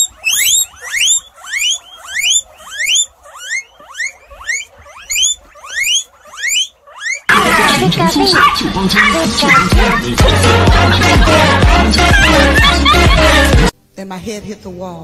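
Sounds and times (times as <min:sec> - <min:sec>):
guinea pig squealing: 0:00.0 - 0:13.6.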